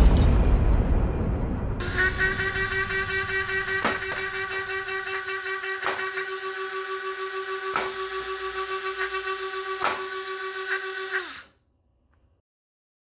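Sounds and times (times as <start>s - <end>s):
flywheel motors whining: 1.8s - 11.6s.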